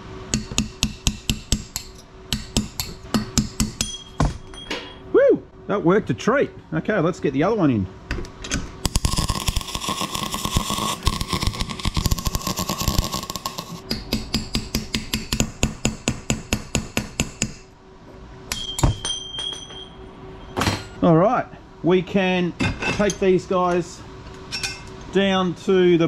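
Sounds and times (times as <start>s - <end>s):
metallic clink ringing: 18.5s - 20.6s.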